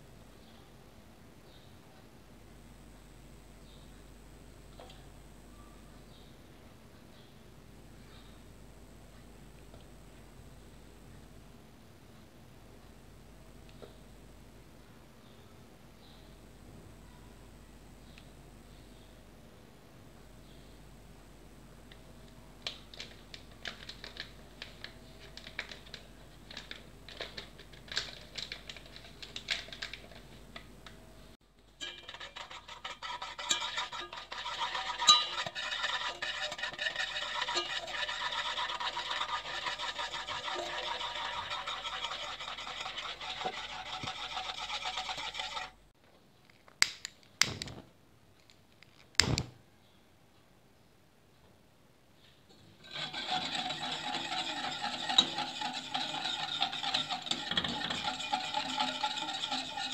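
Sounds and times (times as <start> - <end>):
powder sifted through metal sieve: 31.8 - 45.8, 52.8 - 59.9.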